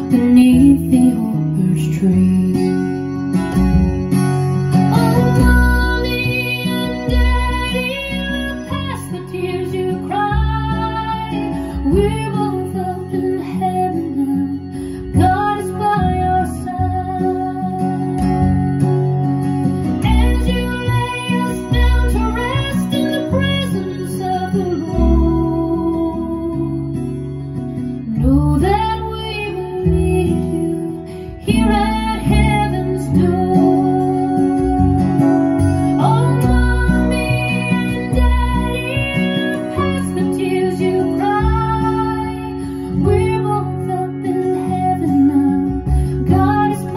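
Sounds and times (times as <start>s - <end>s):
person singing: 0.0s - 3.1s, 4.7s - 19.0s, 19.7s - 27.3s, 28.0s - 46.9s
acoustic guitar: 0.0s - 46.9s
folk song over loudspeakers: 0.0s - 46.9s
plucked string accompaniment: 0.0s - 46.9s.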